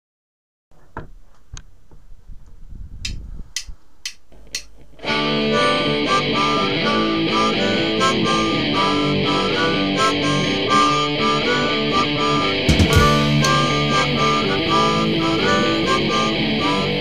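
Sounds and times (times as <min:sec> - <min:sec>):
count-in clicks: 0:03.1 - 0:04.8, 0:12.7 - 0:13.9
punk rock band playing: 0:05.0 - 0:17.0.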